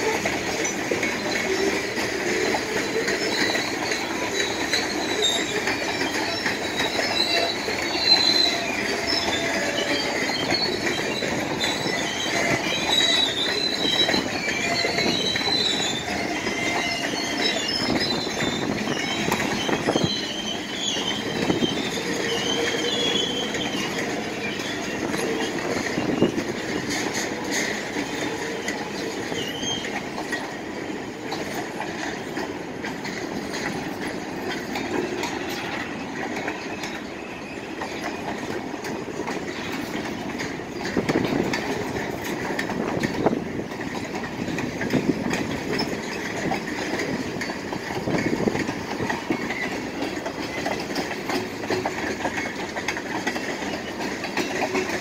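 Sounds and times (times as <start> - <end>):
high-pitched wheel squeals: 0.0 - 30.4
freight train rumble and clatter: 0.0 - 55.0.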